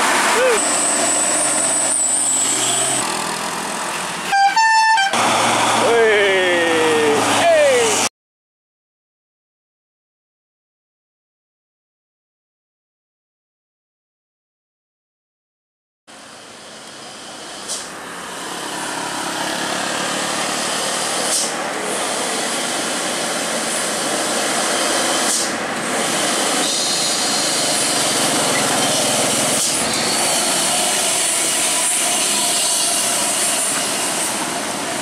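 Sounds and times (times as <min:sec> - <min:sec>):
truck diesel engine drone: 0:00.0 - 0:08.1, 0:16.1 - 0:35.0.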